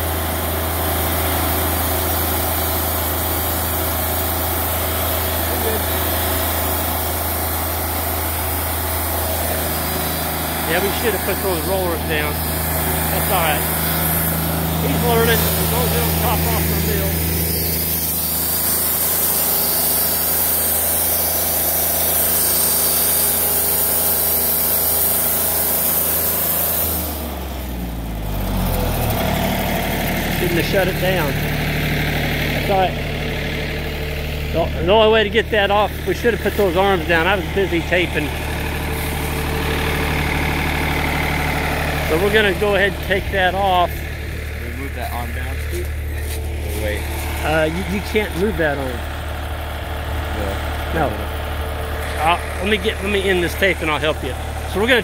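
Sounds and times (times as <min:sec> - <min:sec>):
sawmill engine under load: 0:00.0 - 0:55.0
band blade cutting log: 0:01.8 - 0:27.3, 0:35.9 - 0:48.8
band blade hissing through log: 0:11.0 - 0:27.3, 0:38.3 - 0:41.0.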